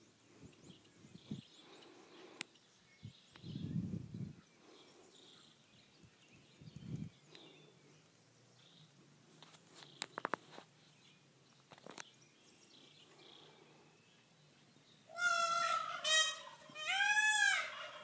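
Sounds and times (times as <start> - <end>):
peacock calling: 15.1 - 18.0.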